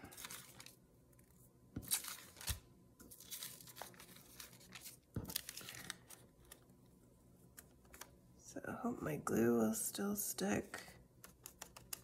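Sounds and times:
rice paper rustling and crinkling: 0:00.0 - 0:00.8, 0:01.9 - 0:06.6.

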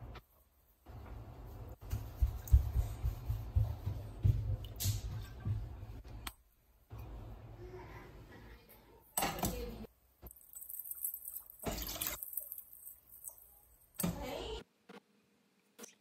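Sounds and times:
water pouring into a saucepan: 0:10.3 - 0:13.5
water splashes: 0:10.7 - 0:13.4.

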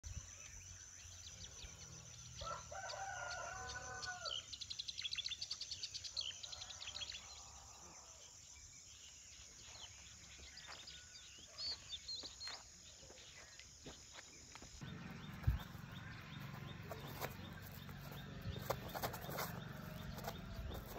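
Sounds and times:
small birds chirping: 0:00.0 - 0:20.9
rooster crowing: 0:02.4 - 0:04.4.

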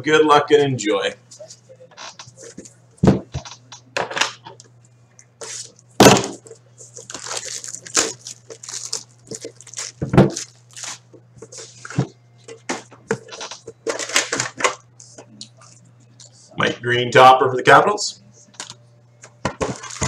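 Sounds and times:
shrink-wrap crinkling and tearing: 0:06.9 - 0:11.1, 0:19.6 - 0:20.0.

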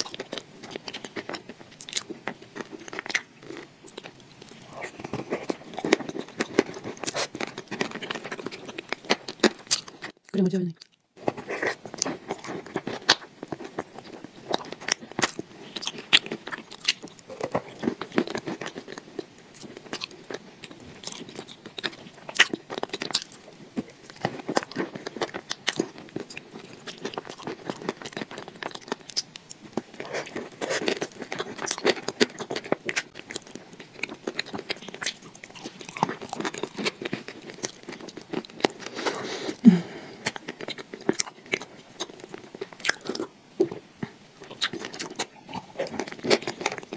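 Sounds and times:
wet eating mouth sounds: 0:00.0 - 0:19.3, 0:34.1 - 0:46.9
biting and chewing: 0:00.0 - 0:46.9.

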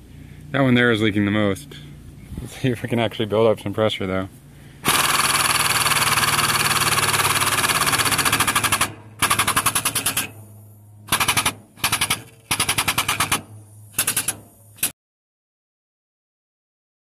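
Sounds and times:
hydraulic pump rattling: 0:04.8 - 0:10.4, 0:11.1 - 0:14.9.

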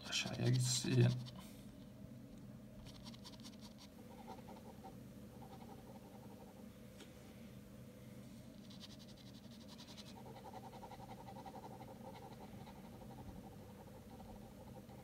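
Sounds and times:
pen scratching on paper: 0:08.6 - 0:15.0.

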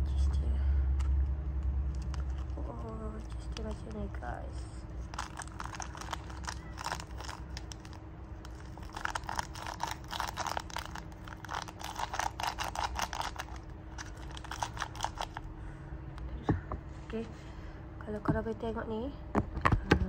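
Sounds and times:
plastic sachet crinkling: 0:01.6 - 0:04.4, 0:05.0 - 0:15.5.

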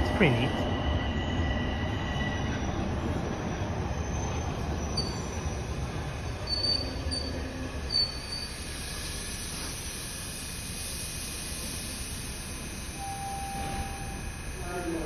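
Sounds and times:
subway train rumble: 0:00.0 - 0:15.0
high-pitched brake squeals: 0:00.4 - 0:02.8, 0:03.9 - 0:08.7.

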